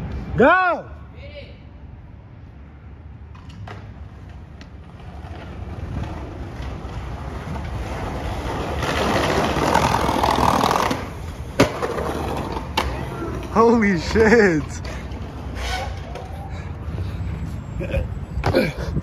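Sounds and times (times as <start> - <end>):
skateboard clack: 3.3 - 14.2
skateboard wheels rolling on bricks: 3.3 - 16.5
skateboard landing smack: 11.6 - 12.0.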